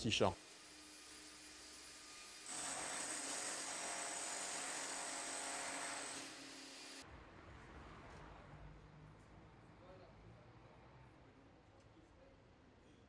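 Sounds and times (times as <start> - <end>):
power tool whining: 0.4 - 7.0.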